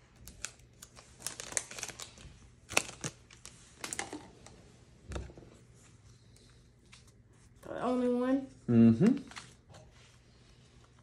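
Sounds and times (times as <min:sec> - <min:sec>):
foil wrapper crinkling: 0:00.0 - 0:04.2.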